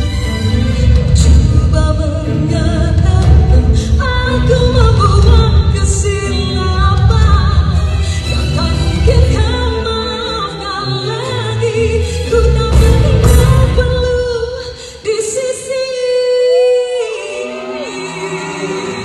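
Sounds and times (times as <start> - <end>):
band accompaniment: 0.0 - 11.6, 12.2 - 14.6.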